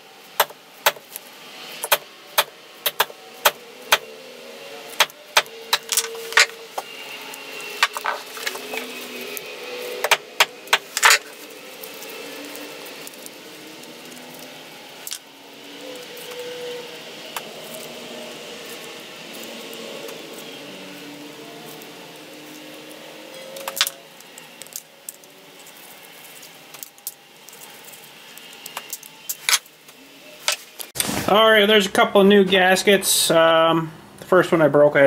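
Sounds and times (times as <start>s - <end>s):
small parts clicking and clinking: 5.0s - 9.4s, 10.0s - 15.3s, 22.4s - 30.9s.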